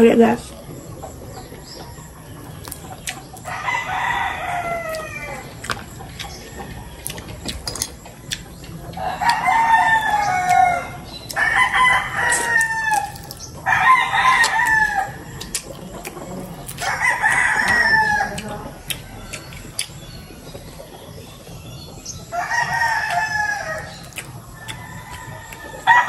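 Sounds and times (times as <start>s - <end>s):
rooster crowing: 3.5s - 5.6s, 8.9s - 20.6s, 22.3s - 26.0s.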